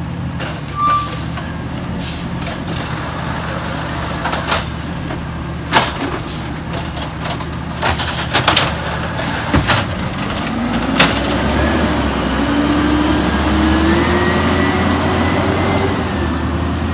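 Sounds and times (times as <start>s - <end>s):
truck moving off whine: 0.0s - 16.9s
knocks and bangs of cart dumping: 4.1s - 11.7s.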